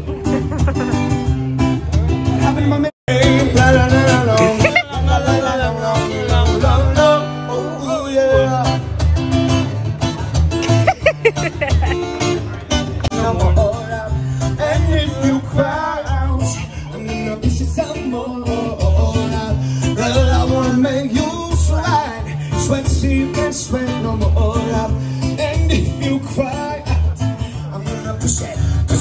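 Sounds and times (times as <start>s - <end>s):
guitar: 0.0s - 29.0s
person singing: 3.1s - 8.9s.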